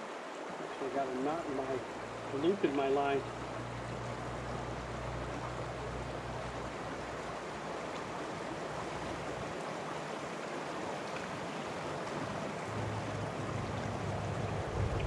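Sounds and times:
river water running over stones: 0.0 - 15.0
low rumble: 14.5 - 15.0.

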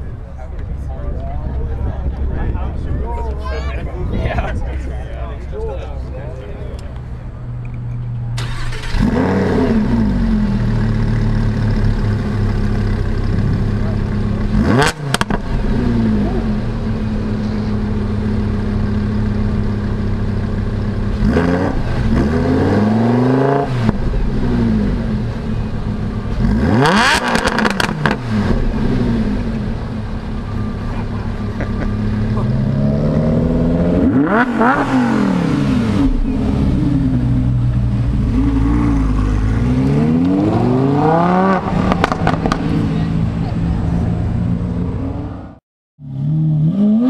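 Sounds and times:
car engine idling and revving: 0.0 - 47.0
exhaust crackles: 6.7 - 43.8.

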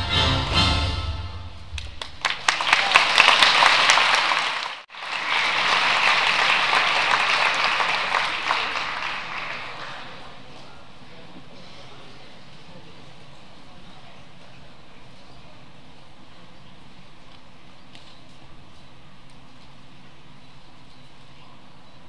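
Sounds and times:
string music: 0.0 - 1.7
audience applauding: 1.8 - 10.5.

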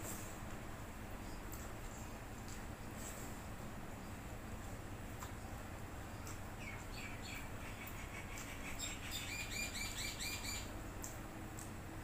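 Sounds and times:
bird chirping: 6.6 - 10.7.

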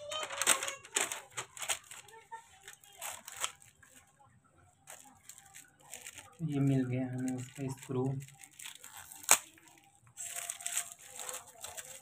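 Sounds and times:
paper and plastic bag rustling: 0.0 - 4.2, 4.8 - 12.0.

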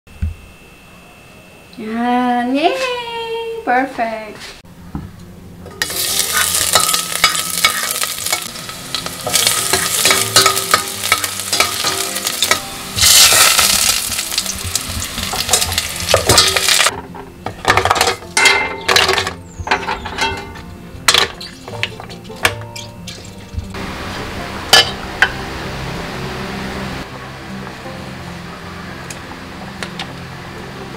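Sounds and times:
garlic sizzling in a pot: 5.7 - 16.9
shells clattering into a pot: 17.6 - 22.6.

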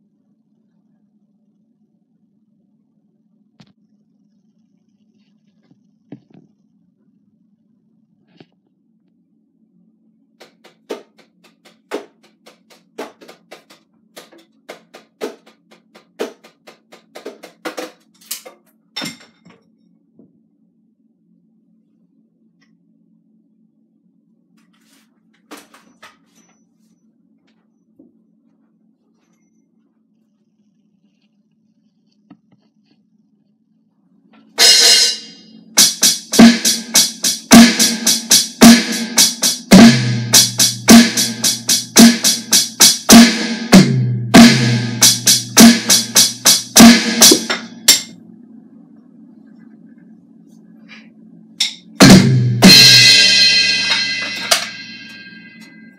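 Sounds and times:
drumsticks tapping rubber pads: 10.4 - 18.0
electronic drum beat: 10.4 - 18.0, 34.6 - 48.1, 52.0 - 55.3.

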